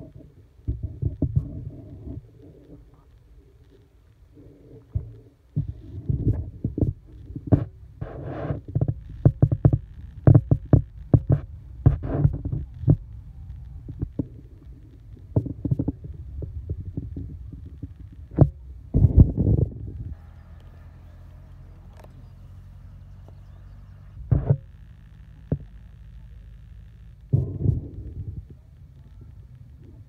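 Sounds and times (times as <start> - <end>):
wind buffeting microphone: 5.0 - 20.5, 27.3 - 30.0.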